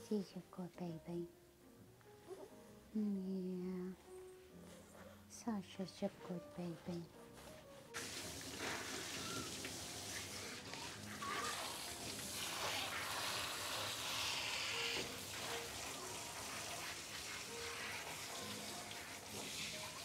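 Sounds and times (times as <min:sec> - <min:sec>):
hose sprayer hissing: 0:08.0 - 0:20.0.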